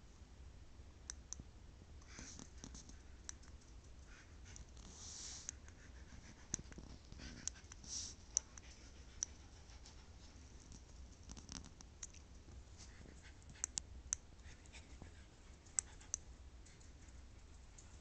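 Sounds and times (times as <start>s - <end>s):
dog paws scratching carpet: 2.2s - 13.6s.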